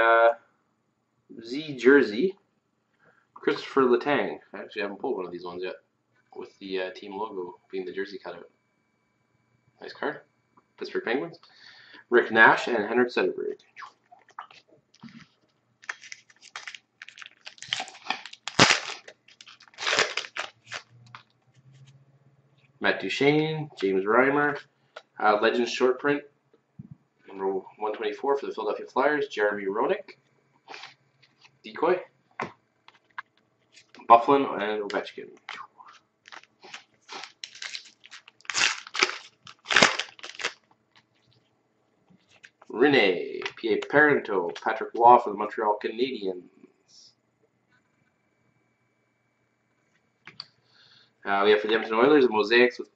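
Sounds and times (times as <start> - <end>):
cards being handled: 15.0 - 21.9, 36.3 - 40.6
wrapper being torn and crinkled: 15.8 - 21.2, 36.2 - 41.1.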